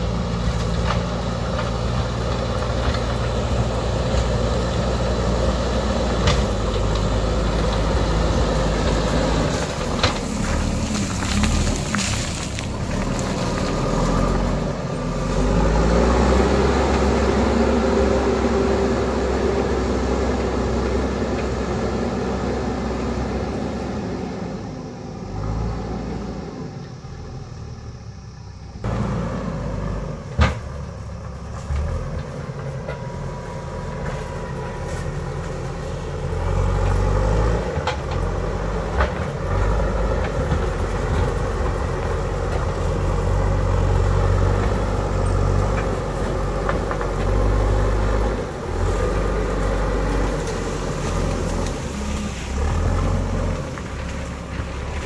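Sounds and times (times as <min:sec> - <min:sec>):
diesel engine running: 0:00.0 - 0:55.0
bucket pushing earth and stones: 0:05.9 - 0:17.1.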